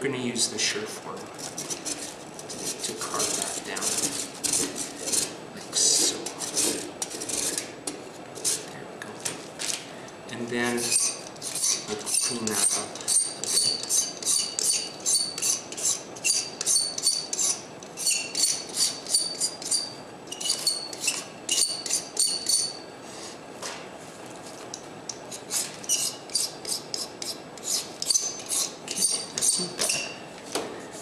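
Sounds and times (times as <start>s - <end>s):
metal tool scraping plaster: 1.4s - 7.7s, 10.8s - 23.4s, 25.3s - 30.2s.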